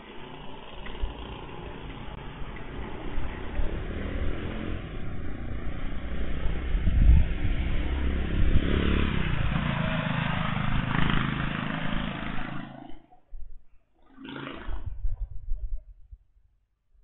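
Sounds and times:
motorcycle engine rumble: 0.0 - 12.9.

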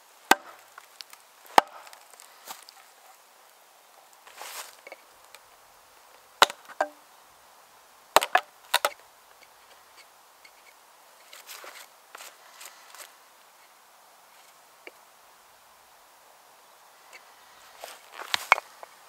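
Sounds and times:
axe splitting wooden log: 0.3 - 0.8, 1.5 - 2.0, 6.4 - 7.0, 8.2 - 9.0
soft rustling: 0.5 - 5.5, 9.4 - 14.6, 17.0 - 19.0.

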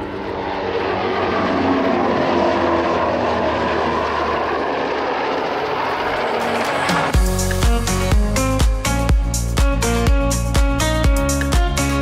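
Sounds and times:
helicopter flying past: 0.0 - 8.5.

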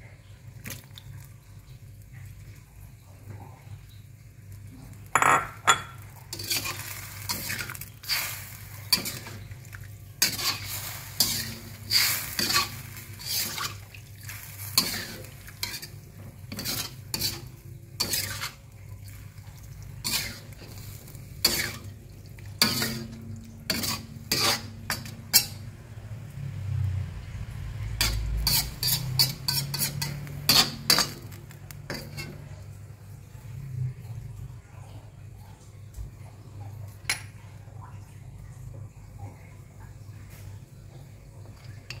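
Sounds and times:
utensils scraping metal wok: 6.3 - 9.6, 10.2 - 18.6, 20.0 - 22.0, 22.6 - 25.7, 27.9 - 32.6.

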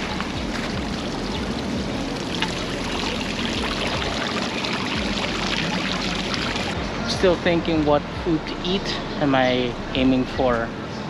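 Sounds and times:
fountain water splashing: 0.0 - 6.8.

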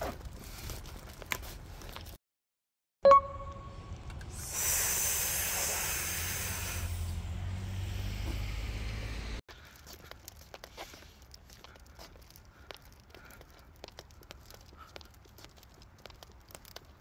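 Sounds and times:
sharp click with ding: 3.0 - 3.8
loud hiss: 4.3 - 8.7.

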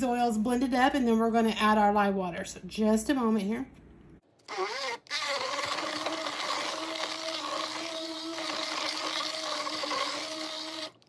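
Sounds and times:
stick blender running: 4.4 - 11.0.

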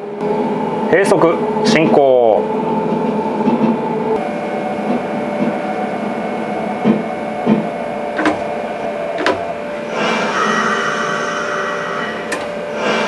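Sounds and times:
electric train whine: 0.0 - 13.0
dull thumps: 6.9 - 9.8.

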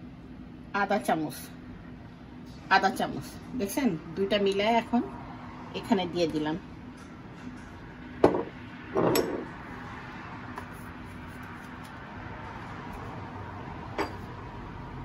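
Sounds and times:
faint kitchen hum: 0.0 - 15.0.

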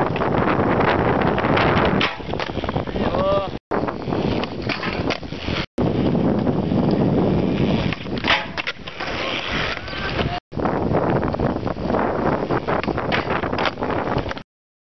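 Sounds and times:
skateboard wheels rolling on concrete: 0.0 - 14.4
skateboard clattering on ground: 1.8 - 2.6, 7.8 - 10.4.

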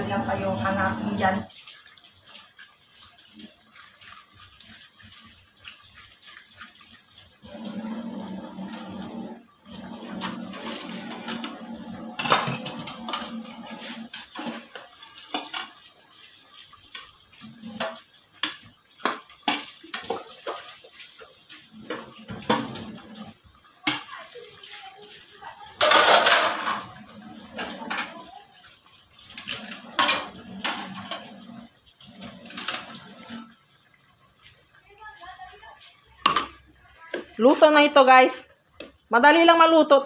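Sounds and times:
broth bubbling at a simmer: 0.0 - 39.2
metal utensil clinking on pots: 12.2 - 13.4, 25.8 - 26.9, 29.4 - 31.2.

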